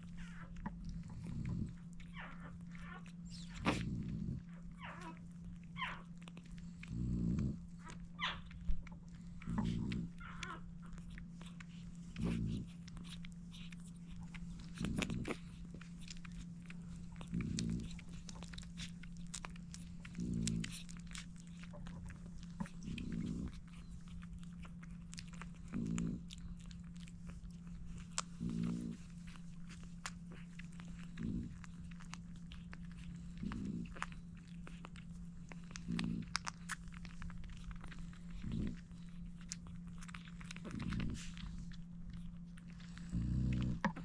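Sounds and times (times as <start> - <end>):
puppies suckling: 0.0 - 44.0
steady low hum: 0.0 - 44.0.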